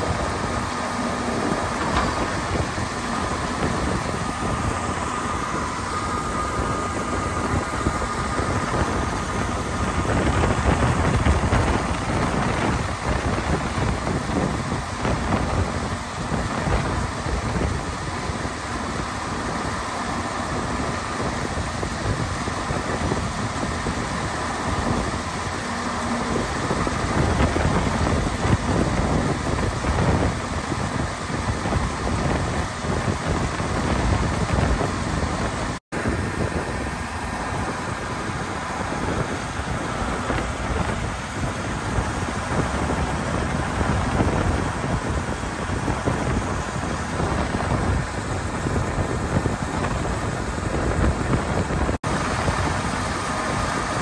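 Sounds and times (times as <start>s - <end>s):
grain auger unloading corn: 0.0s - 54.0s
tractor diesel engine running: 0.0s - 54.0s
wind rumbling on microphone: 0.0s - 54.0s.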